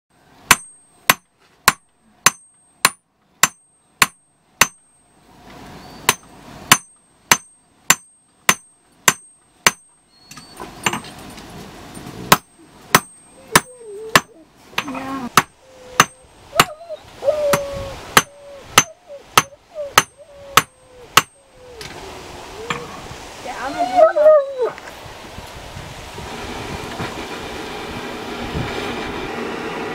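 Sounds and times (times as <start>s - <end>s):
hammer striking steel on anvil: 0.5s - 4.9s, 6.1s - 9.9s, 12.3s - 16.2s.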